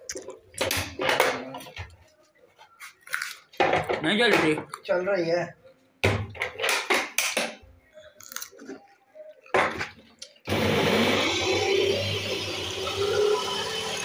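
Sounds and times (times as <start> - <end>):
plastic parts knocking and clicking: 0.5 - 1.8, 6.0 - 7.6
juicer motor whirring: 10.5 - 14.0.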